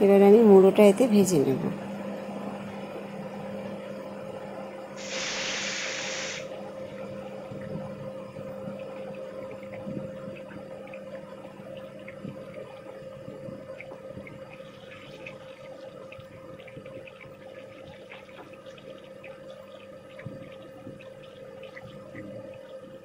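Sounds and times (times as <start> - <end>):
steady low hum: 0.0 - 23.0
fish sizzling in hot oil: 5.0 - 6.5
oil popping and spitting: 5.0 - 6.5.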